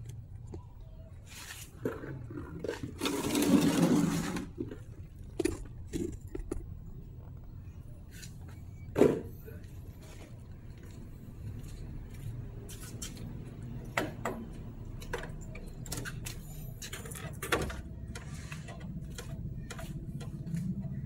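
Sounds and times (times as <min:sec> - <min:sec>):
rustle and scrape: 0:01.2 - 0:04.9.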